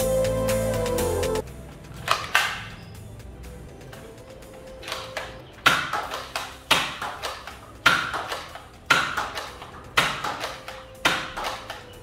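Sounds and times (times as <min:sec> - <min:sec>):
toy blaster snapping: 0:02.0 - 0:02.7, 0:04.8 - 0:11.9.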